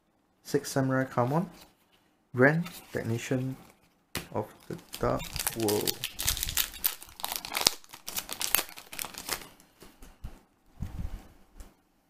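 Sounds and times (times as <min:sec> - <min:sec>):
cards rustling: 0:04.6 - 0:09.6
foil pack crinkling: 0:04.6 - 0:09.6.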